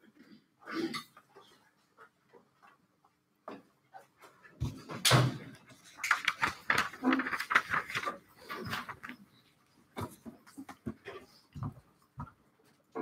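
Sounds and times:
footsteps: 0:09.9 - 0:13.0.

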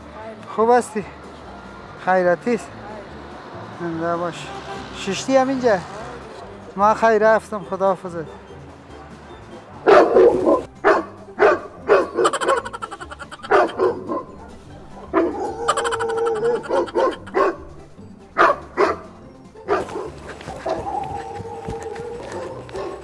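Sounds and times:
music: 0:00.0 - 0:23.0
recorded dog barking: 0:08.1 - 0:17.8, 0:18.4 - 0:23.0.

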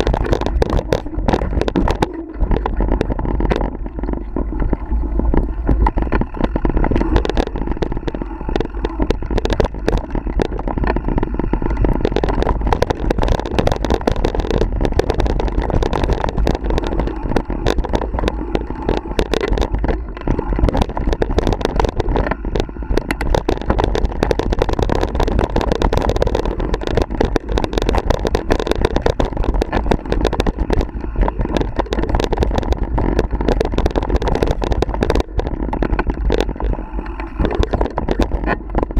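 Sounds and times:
bike rattling and knocking: 0:00.0 - 0:38.9
bike tyre rumble: 0:00.0 - 0:38.9
wind buffeting microphone: 0:00.0 - 0:38.9.

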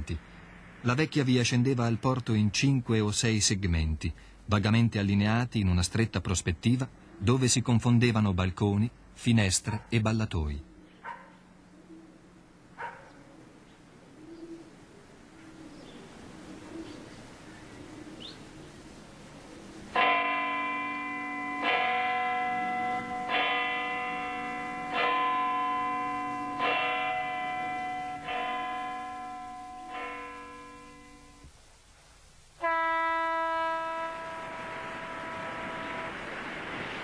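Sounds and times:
faint street ambience: 0:00.0 - 0:37.0
church bell tolling: 0:20.0 - 0:31.4.

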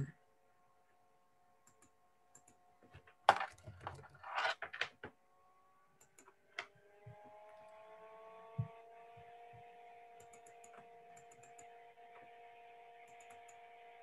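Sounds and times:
keyboard typing and mouse clicks: 0:01.6 - 0:05.0, 0:06.0 - 0:06.7, 0:10.2 - 0:11.8, 0:13.0 - 0:13.6.

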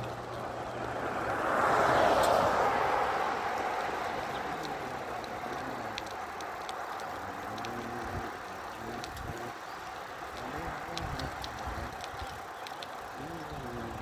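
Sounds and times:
faint high ticks: 0:03.5 - 0:14.0
wind rushing on microphone: 0:10.4 - 0:12.4.

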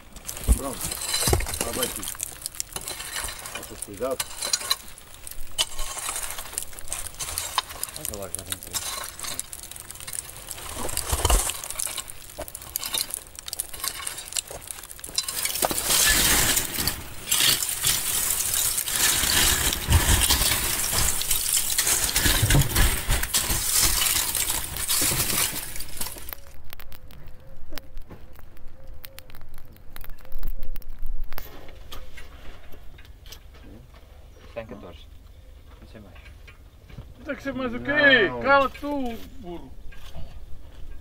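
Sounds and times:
charcoal lumps clattering: 0:00.0 - 0:26.6.

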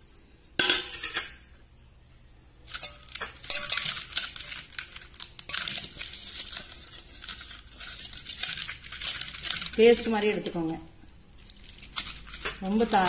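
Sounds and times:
powder scraping in metal pot: 0:02.7 - 0:10.8, 0:11.7 - 0:13.0.

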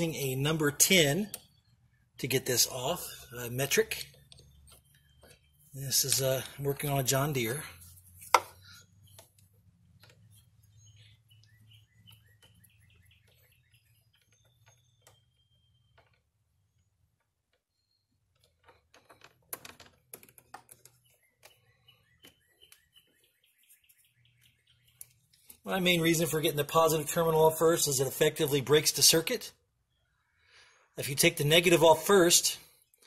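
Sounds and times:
faint bird chirps: 0:08.6 - 0:19.1, 0:20.9 - 0:25.6, 0:29.8 - 0:31.0.

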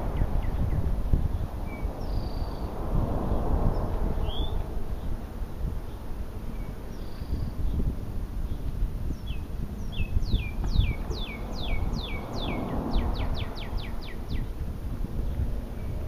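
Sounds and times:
songbird singing: 0:00.0 - 0:16.0.

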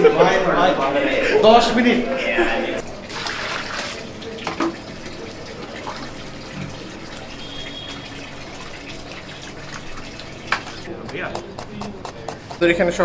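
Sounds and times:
running water rushing: 0:02.8 - 0:10.9.

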